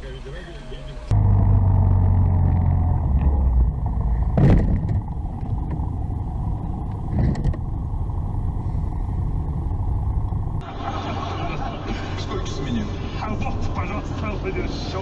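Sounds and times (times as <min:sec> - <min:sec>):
street traffic noise: 0:00.0 - 0:15.0
sharp thump: 0:04.3 - 0:05.8.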